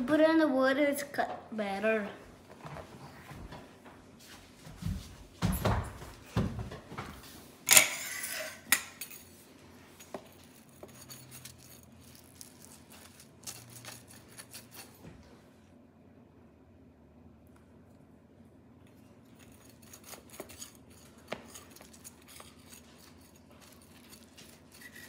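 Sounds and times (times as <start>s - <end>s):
clatter of utensils and dishes: 7.7s - 9.3s, 10.1s - 15.2s
pizza wheel clicking and scraping: 10.8s - 15.0s, 19.4s - 25.0s.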